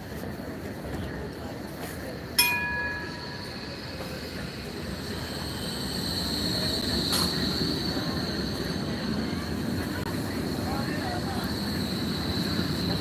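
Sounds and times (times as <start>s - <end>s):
rail vehicle low rumble: 0.0s - 13.0s
bell ring: 2.4s - 3.9s
high wheel squeal: 3.0s - 9.8s, 10.8s - 13.0s.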